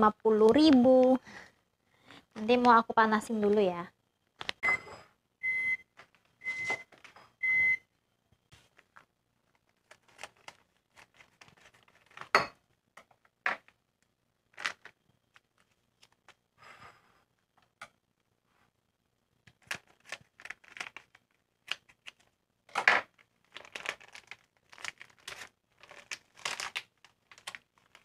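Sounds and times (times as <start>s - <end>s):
electronic appliance beeps: 4.6s - 7.9s
plastic pouch crinkling: 8.6s - 12.4s, 14.5s - 16.4s, 19.5s - 22.3s, 23.0s - 28.0s.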